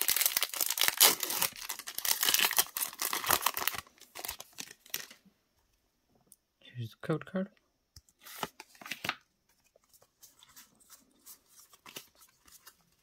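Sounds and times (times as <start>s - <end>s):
foil wrapper tearing and crinkling: 0.0s - 5.2s
cards clicking and rustling: 8.1s - 13.0s.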